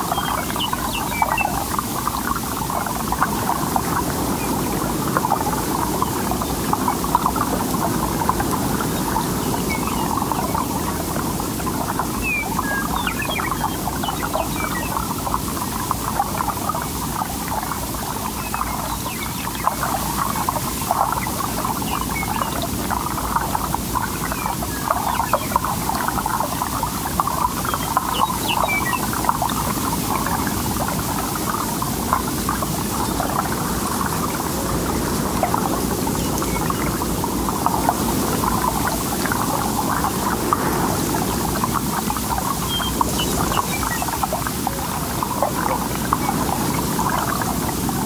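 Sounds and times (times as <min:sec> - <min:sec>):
bird chirps: 0:27.7 - 0:29.1, 0:42.6 - 0:44.1.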